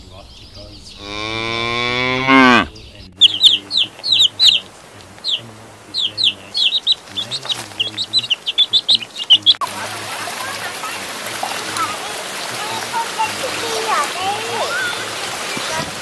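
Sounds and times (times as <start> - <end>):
baby chicks peeping: 0.0 - 16.0
cow mooing: 1.0 - 2.7.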